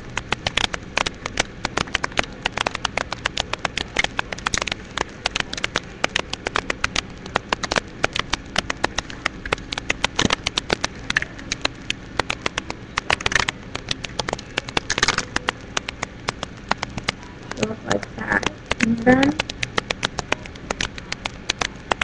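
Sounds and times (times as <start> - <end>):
paper being folded and creased: 0.0 - 17.2.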